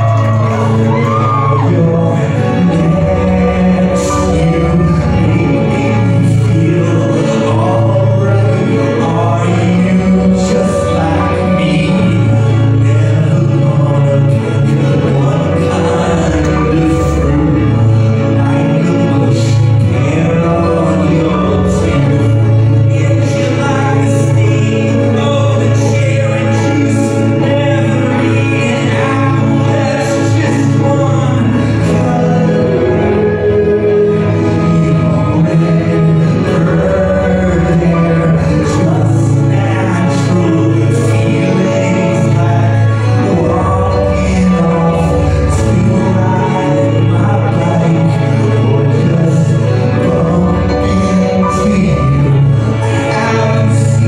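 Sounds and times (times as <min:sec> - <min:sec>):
live band playing: 0:00.0 - 0:54.0
low bass notes: 0:00.0 - 0:54.0
person singing: 0:00.0 - 0:54.0.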